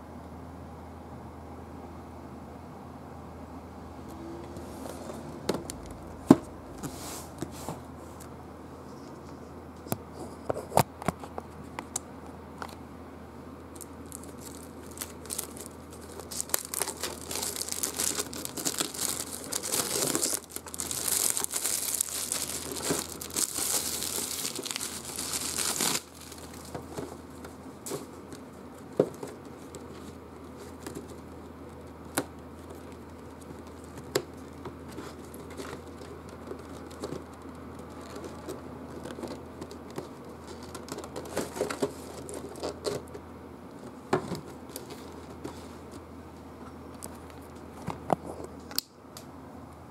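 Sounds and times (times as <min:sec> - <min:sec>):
plastic shrink wrap crinkling: 0:13.7 - 0:43.2.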